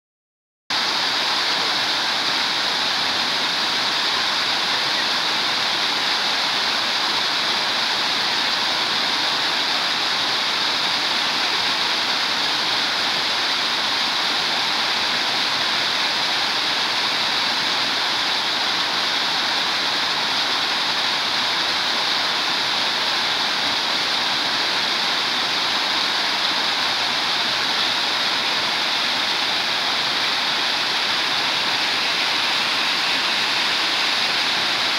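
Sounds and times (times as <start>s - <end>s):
waterfall splashing: 0.7s - 34.9s.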